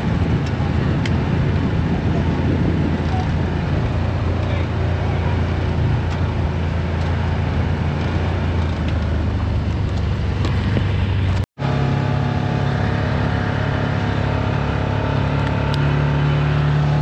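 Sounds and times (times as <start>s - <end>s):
off-road vehicle engine running: 0.0s - 17.0s.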